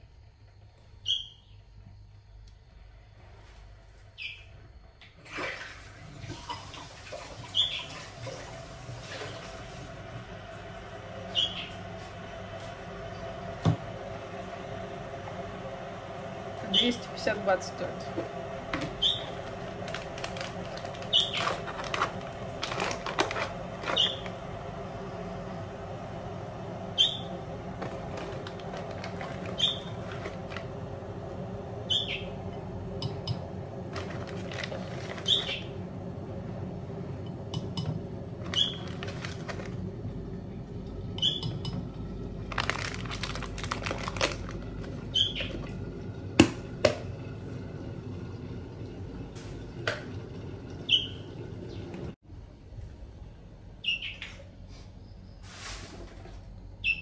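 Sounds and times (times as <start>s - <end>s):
steady low hum: 0.0s - 6.2s, 7.9s - 57.0s
fledgling bird chirping: 1.0s - 1.6s, 4.2s - 4.5s, 7.6s - 7.9s, 11.3s - 11.8s, 19.0s - 19.4s, 21.0s - 21.4s, 24.0s - 24.2s, 27.0s - 27.3s, 29.6s - 30.0s, 31.9s - 32.4s, 35.2s - 35.8s, 45.1s - 45.5s, 50.9s - 51.8s, 53.8s - 54.4s.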